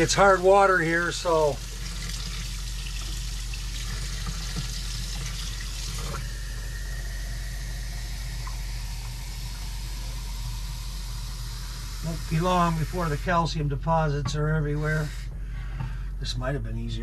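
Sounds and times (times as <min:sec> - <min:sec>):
tap water running into container: 0:00.0 - 0:11.2
low steady hum: 0:00.0 - 0:17.0.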